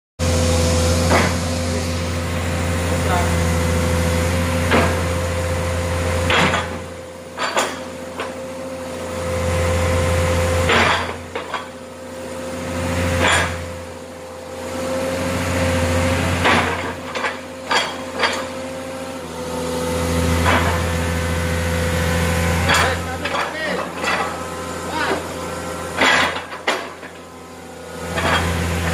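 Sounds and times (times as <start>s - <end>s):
excavator engine and hydraulics: 0.2s - 28.9s
sharp metallic clanks: 22.6s - 25.3s, 26.0s - 27.3s.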